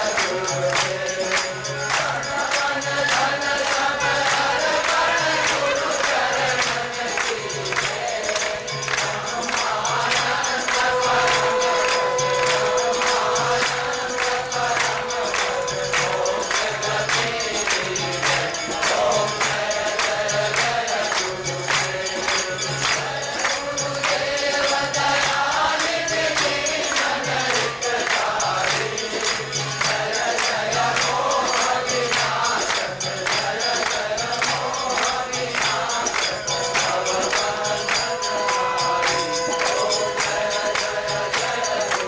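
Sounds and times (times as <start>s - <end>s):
group singing a devotional chant: 0.0s - 42.0s
percussion beat: 0.0s - 42.0s
rhythmic hand-clapping: 0.0s - 42.0s.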